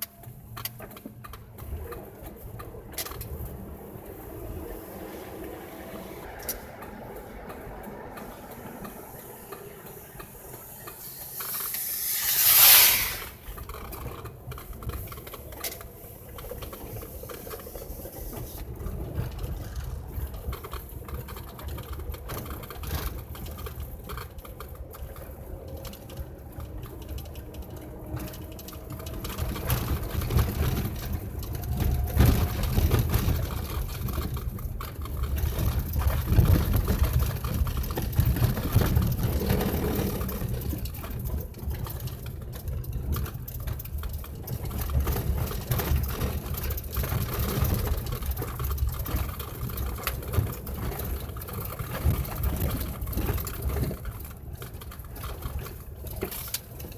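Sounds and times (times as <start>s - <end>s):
engine and tyre rumble: 0.0s - 56.9s
loud rising hiss: 10.7s - 13.4s.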